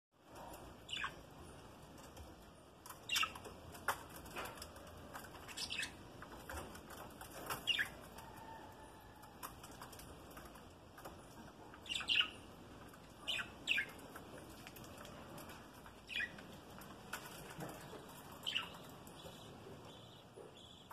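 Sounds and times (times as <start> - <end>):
budgerigars chirping: 0.9 - 1.2, 3.1 - 3.4, 5.5 - 6.0, 11.8 - 12.5, 13.2 - 14.0, 16.1 - 16.4, 18.4 - 20.9.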